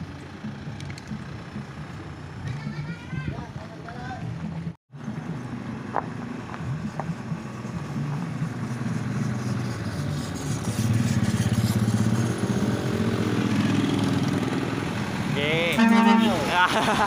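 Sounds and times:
truck engine running: 0:00.0 - 0:02.9
motorcycle passing by: 0:04.9 - 0:17.0.

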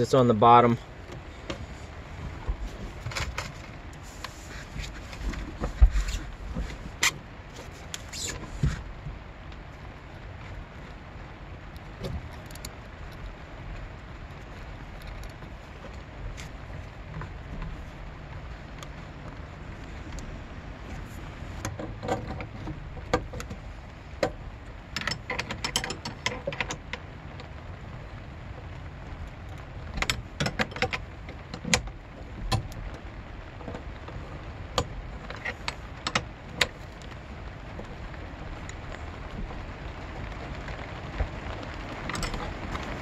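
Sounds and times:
steady low rumble: 0:00.0 - 0:43.0
metal nuts clicking and tapping: 0:25.0 - 0:27.0.

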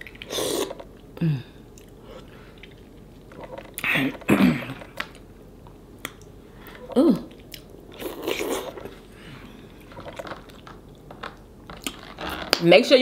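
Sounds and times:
woman chewing with wet smacks: 0:00.0 - 0:03.9, 0:04.8 - 0:09.0, 0:09.7 - 0:12.0
woman humming: 0:01.2 - 0:01.6, 0:06.8 - 0:07.4.

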